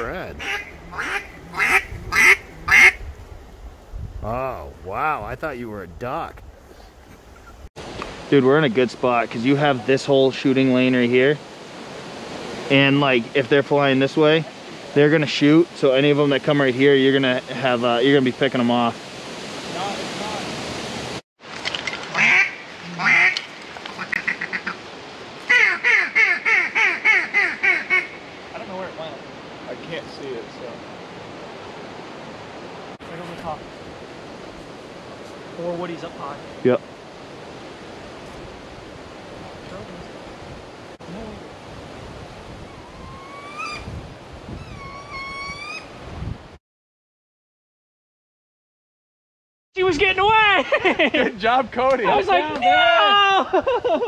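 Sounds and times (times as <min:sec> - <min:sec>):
duck call quacks: 0:00.0 - 0:03.0, 0:22.2 - 0:23.4, 0:24.0 - 0:24.8, 0:25.5 - 0:28.2
wind buffeting microphone: 0:00.0 - 0:08.3, 0:37.4 - 0:46.6
rising whistled calls: 0:42.7 - 0:43.9, 0:44.6 - 0:46.0.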